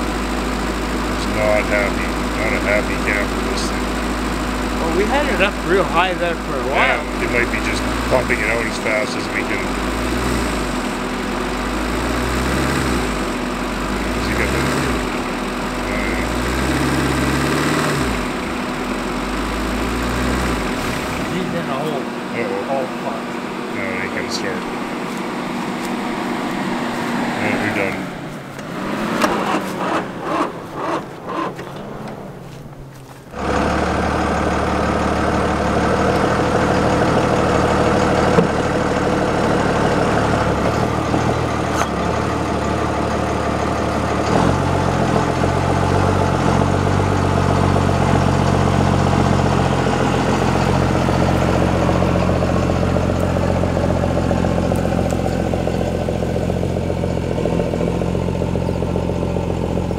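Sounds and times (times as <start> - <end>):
vehicle engine running: 0.0 - 59.9
uneven pulsing sounds: 1.2 - 11.2.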